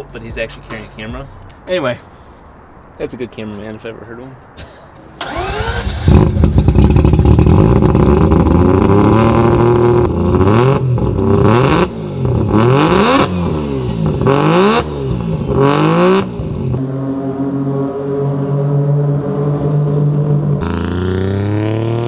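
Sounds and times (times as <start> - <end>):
rotary engine idling and revving: 5.2 - 17.0, 17.7 - 22.0.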